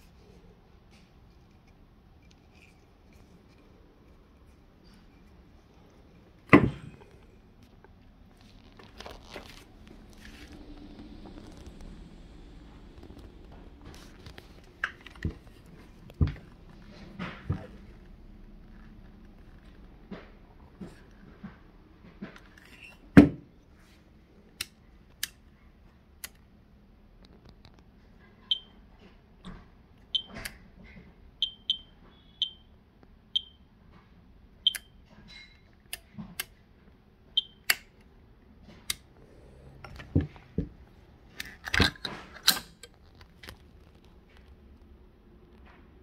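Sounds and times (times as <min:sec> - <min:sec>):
radiation meter beeps: 0:28.5 - 0:28.8, 0:30.1 - 0:30.4, 0:31.4 - 0:32.7, 0:33.3 - 0:33.7, 0:34.6 - 0:35.0, 0:37.4 - 0:37.7.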